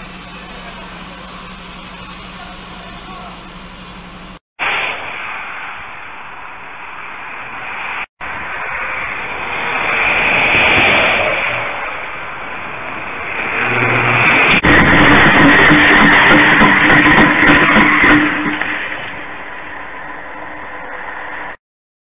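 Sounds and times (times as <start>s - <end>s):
highway traffic noise: 8.2s - 14.6s.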